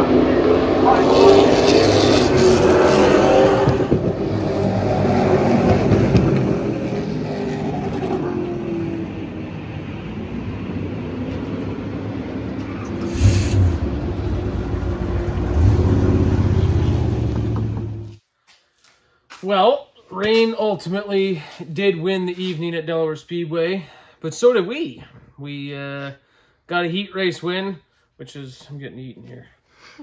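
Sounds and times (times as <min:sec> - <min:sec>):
race car engine: 0:00.0 - 0:18.2.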